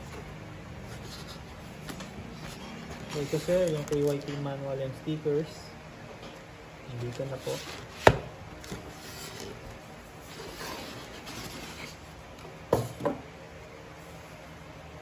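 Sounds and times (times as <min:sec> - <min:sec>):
bag rustling against cardboard: 0:00.8 - 0:04.2.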